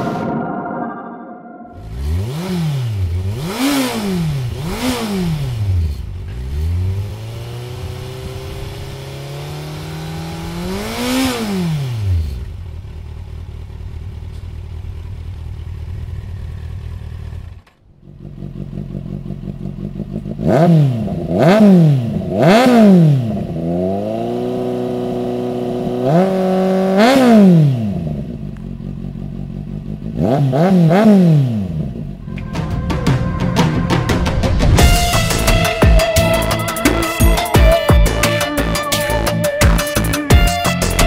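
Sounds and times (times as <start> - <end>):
motorcycle engine revving: 0.0 - 40.4
motorcycle engine idling: 12.5 - 20.4.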